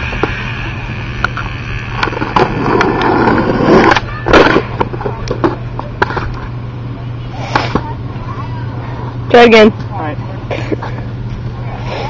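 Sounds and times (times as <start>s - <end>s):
skateboard wheels rolling on pavement: 0.0s - 8.1s
scattered clicks: 1.1s - 3.1s
skateboard clattering on ground: 2.0s - 6.5s.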